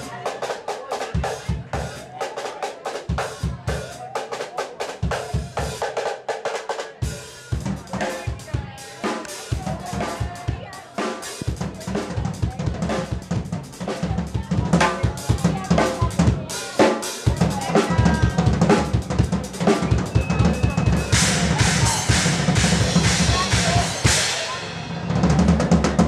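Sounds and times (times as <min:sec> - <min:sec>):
drum solo: 0:00.0 - 0:26.0
cymbals crashing: 0:19.5 - 0:25.2.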